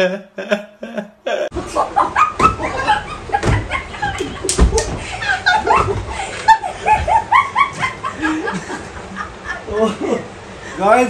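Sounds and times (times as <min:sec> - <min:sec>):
pillow thumps: 0:04.3 - 0:05.1.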